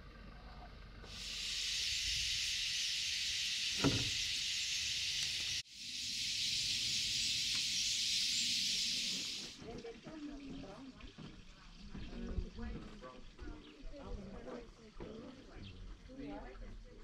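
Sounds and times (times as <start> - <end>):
flock of birds chirping: 1.1 - 9.6
dull knock: 3.8 - 4.1.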